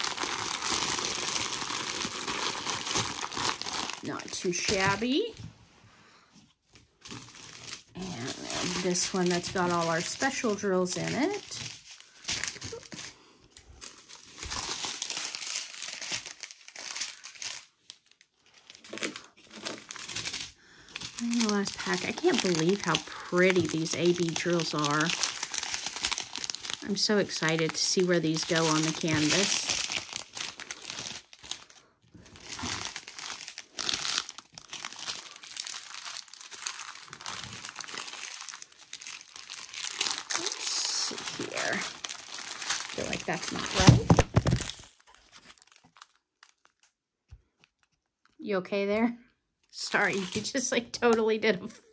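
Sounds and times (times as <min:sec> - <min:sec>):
plastic packets crinkling: 0:00.0 - 0:05.4, 0:06.8 - 0:48.4, 0:50.0 - 0:50.6.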